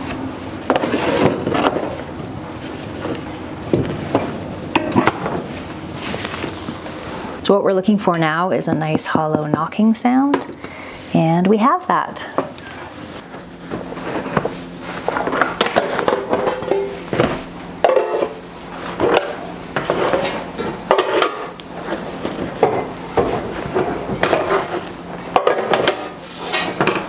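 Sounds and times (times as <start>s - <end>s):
metal pans and utensils clattering: 13.7s - 27.0s.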